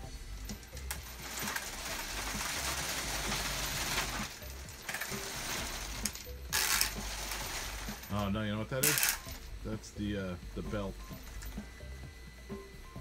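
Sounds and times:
robot drive mechanical noise: 0:00.5 - 0:08.1.

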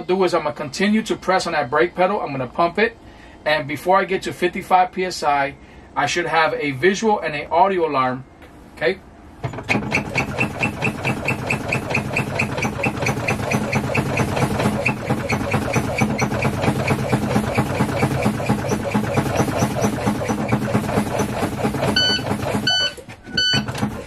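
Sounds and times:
fast-pulsing mechanical running: 0:09.6 - 0:24.0
warning buzzer beeping: 0:10.0 - 0:16.7, 0:22.0 - 0:23.8.

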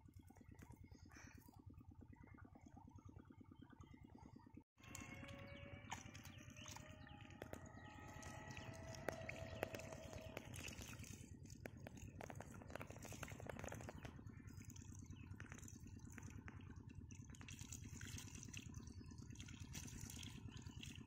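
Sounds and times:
small clicks and splashes: 0:00.0 - 0:01.7, 0:02.4 - 0:21.0
steady low hum: 0:00.0 - 0:21.0
water trickling and dripping: 0:04.8 - 0:21.0.

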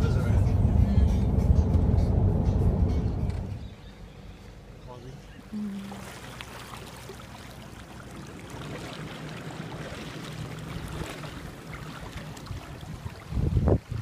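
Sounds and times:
river water over stones: 0:05.4 - 0:14.0
wind rumble on microphone: 0:12.2 - 0:14.0.

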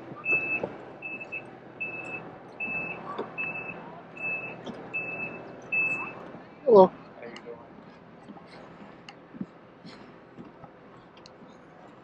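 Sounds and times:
reversing alarm beeping: 0:00.2 - 0:06.2.

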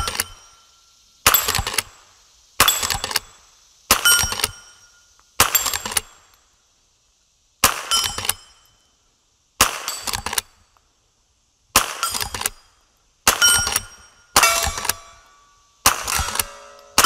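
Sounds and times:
steel targets ringing: 0:04.0 - 0:05.0, 0:13.3 - 0:17.0
rifle shots: 0:07.6 - 0:08.4, 0:09.6 - 0:10.4, 0:11.8 - 0:12.6, 0:13.3 - 0:15.2, 0:15.8 - 0:17.0.

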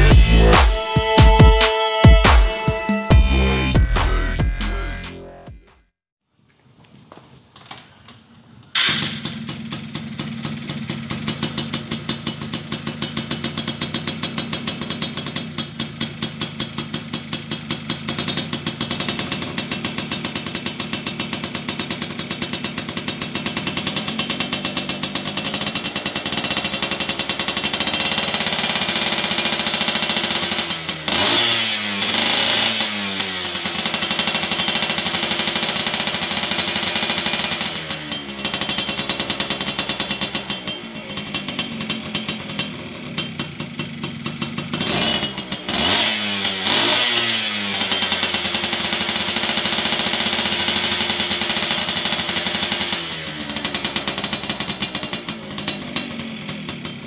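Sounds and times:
throttle blips revving: 0:00.0 - 0:05.8
two-stroke motorcycle engine: 0:00.0 - 0:05.8, 0:08.2 - 0:57.0.

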